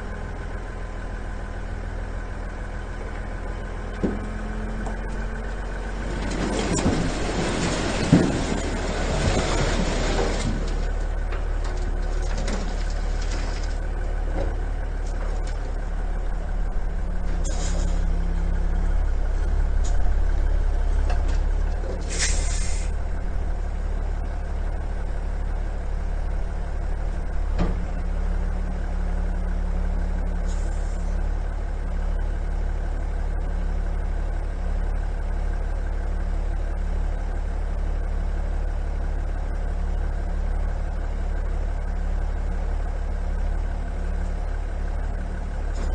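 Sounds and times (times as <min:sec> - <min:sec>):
truck engine running: 0:00.0 - 0:45.9
air hiss bursts: 0:22.1 - 0:22.9.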